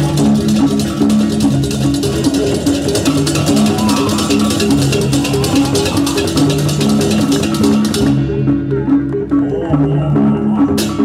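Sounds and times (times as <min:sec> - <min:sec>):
fast crisp percussion strokes: 0:00.0 - 0:09.3
drumming: 0:00.0 - 0:11.0
gamelan metal keys melody: 0:00.0 - 0:11.0.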